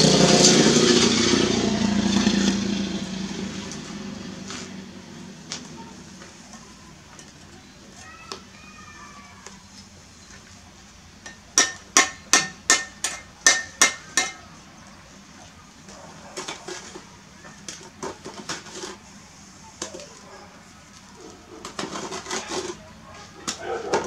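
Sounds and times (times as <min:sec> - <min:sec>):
trowel chopping brick: 0:11.3 - 0:14.4, 0:21.6 - 0:22.8.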